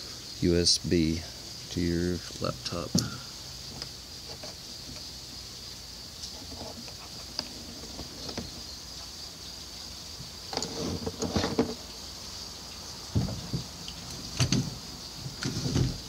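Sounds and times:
high-pitched insect chorus: 0:00.0 - 0:16.0
camera handling knocks and rustling: 0:13.2 - 0:13.7.

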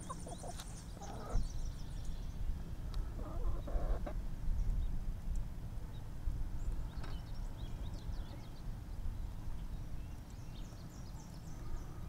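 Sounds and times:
chickens clucking: 0:00.0 - 0:01.5, 0:03.0 - 0:04.2.

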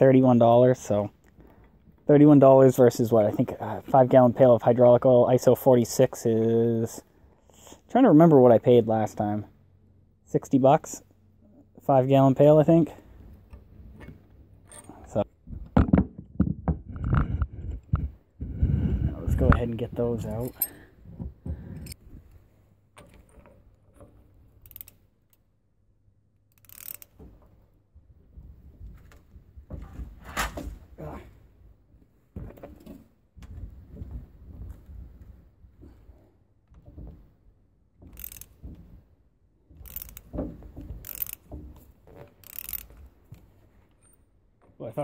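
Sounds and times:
ratchet wrench clicking: 0:24.6 - 0:25.0, 0:26.5 - 0:27.2, 0:38.1 - 0:38.6, 0:39.8 - 0:40.3, 0:41.0 - 0:41.5, 0:42.4 - 0:42.9.

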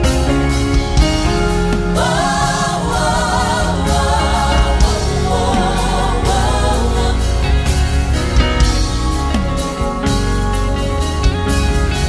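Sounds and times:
band playing: 0:00.0 - 0:12.0
woman singing gospel: 0:01.9 - 0:07.8.

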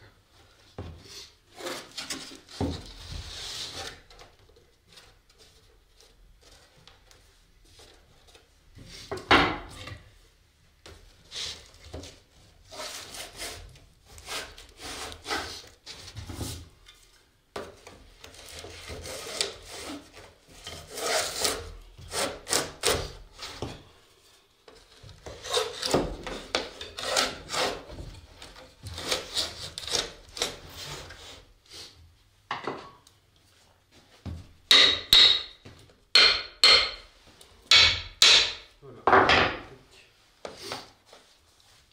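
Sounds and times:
wood scraping on wood: 0:01.0 - 0:04.3, 0:11.3 - 0:23.8, 0:24.7 - 0:31.5
hammer tapping on wood: 0:34.7 - 0:37.0.

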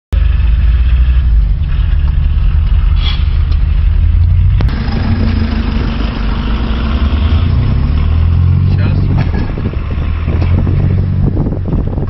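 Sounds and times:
engine and traffic rumble: 0:00.1 - 0:12.0
backhoe engine humming: 0:00.2 - 0:12.0.

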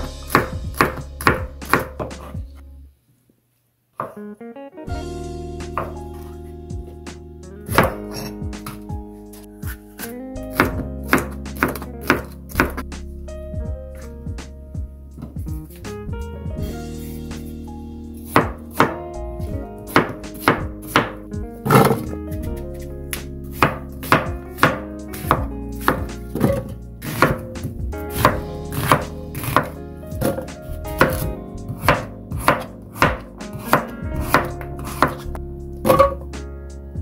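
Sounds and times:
knife chopping on cutting board: 0:00.0 - 0:02.3, 0:05.7 - 0:06.3, 0:07.7 - 0:08.8, 0:10.0 - 0:12.8, 0:18.2 - 0:19.0, 0:19.9 - 0:22.1, 0:23.5 - 0:27.5, 0:28.1 - 0:36.3.

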